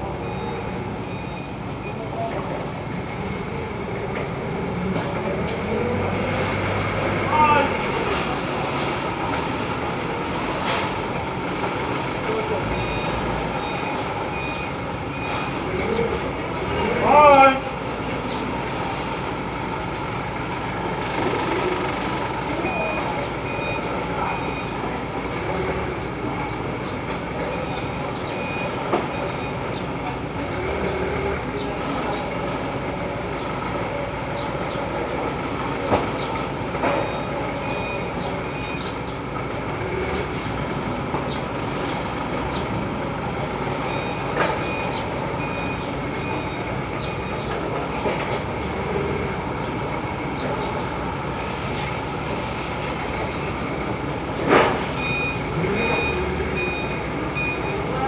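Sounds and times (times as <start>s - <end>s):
reversing beeper: 0.0s - 4.0s, 12.2s - 16.2s, 22.5s - 26.6s, 27.4s - 32.2s, 36.8s - 40.4s, 43.6s - 49.4s, 54.8s - 58.0s
forklift engine running: 0.0s - 58.0s.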